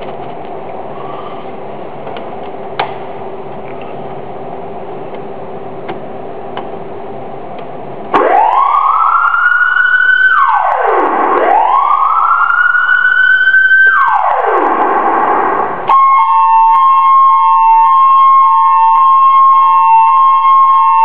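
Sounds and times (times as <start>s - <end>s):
steady low hum: 0.0s - 21.0s
electronic siren wailing: 8.1s - 21.0s.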